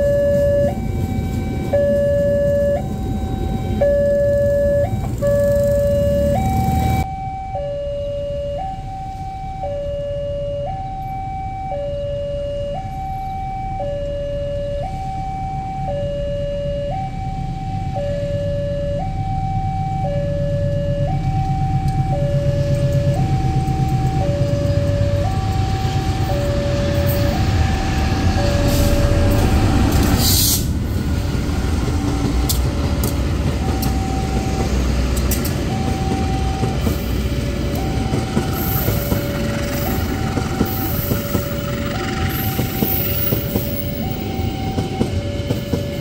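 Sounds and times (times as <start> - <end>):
approaching train rumble: 0.0 - 7.2, 14.8 - 46.0
two-tone crossing alarm: 0.0 - 30.6, 32.0 - 46.0.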